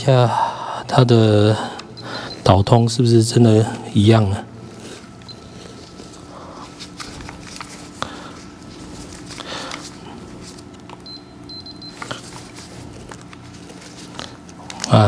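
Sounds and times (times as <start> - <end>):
high-pitched electronic meter beep: 11.0 - 12.0.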